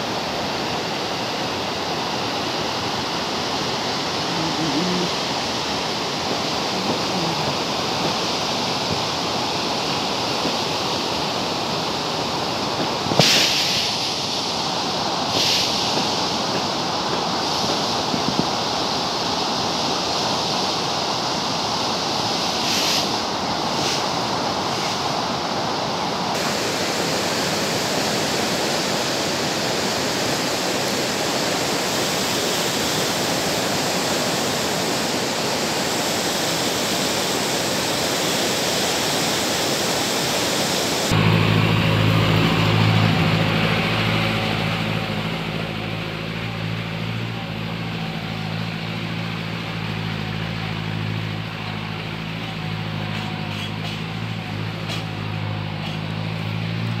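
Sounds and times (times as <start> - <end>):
river rushing over rapids: 0.0 - 57.0
vehicle engine humming: 3.5 - 9.2, 41.0 - 57.0.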